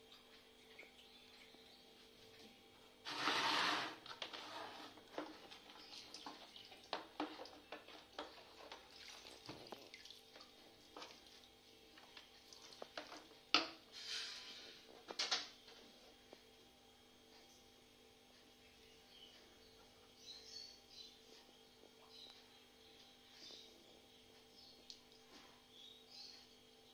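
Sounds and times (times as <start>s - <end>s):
filter pump hum: 0.0s - 26.9s
water trickling and splashing: 5.2s - 13.3s.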